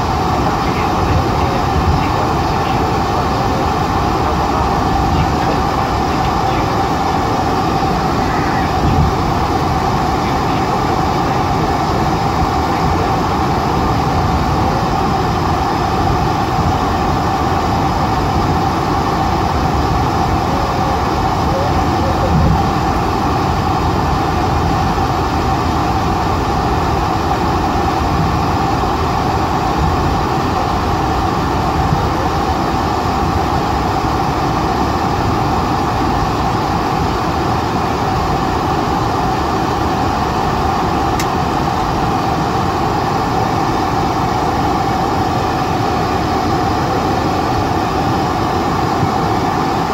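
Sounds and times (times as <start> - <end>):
aircraft cabin low rumble: 0.0 - 49.9
constant whine: 0.0 - 49.9.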